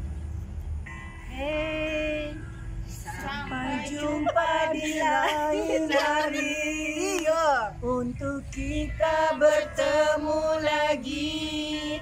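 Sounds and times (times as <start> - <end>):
women singing together: 3.0 - 12.0.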